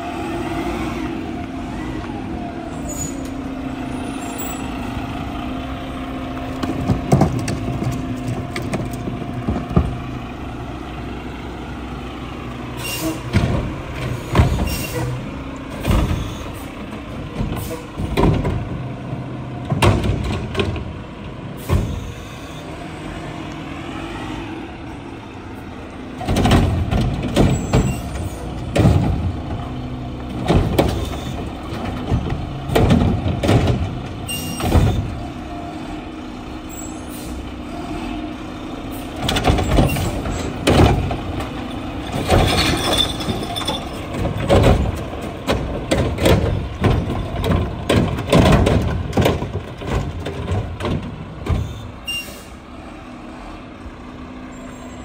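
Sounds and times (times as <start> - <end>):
garbage truck engine running: 0.0 - 55.0
bangs of carts being dumped: 5.9 - 11.6, 12.6 - 22.7, 25.5 - 52.6.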